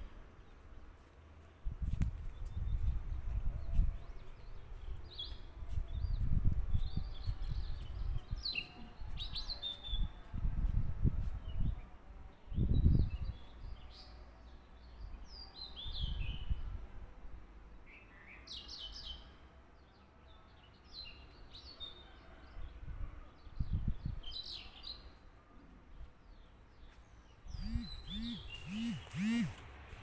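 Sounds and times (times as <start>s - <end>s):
small birds chirping: 26.3s - 29.6s.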